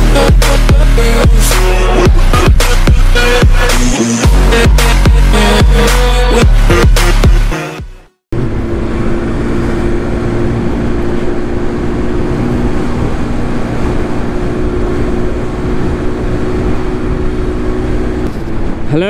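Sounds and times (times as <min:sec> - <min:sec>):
scooter engine humming: 0:08.4 - 0:19.0
wind rush on microphone: 0:08.4 - 0:19.0.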